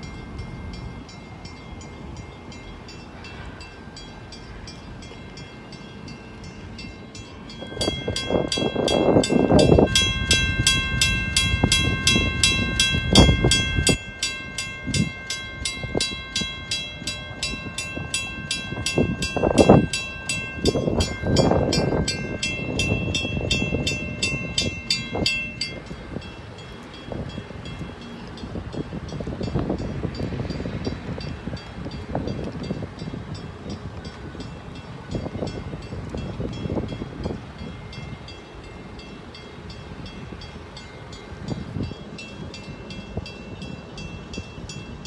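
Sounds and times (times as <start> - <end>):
warning bell ringing: 0.0 - 28.6.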